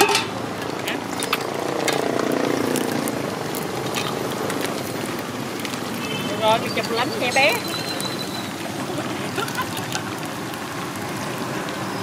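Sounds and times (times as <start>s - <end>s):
oil sizzling while deep-frying: 0.0s - 12.0s.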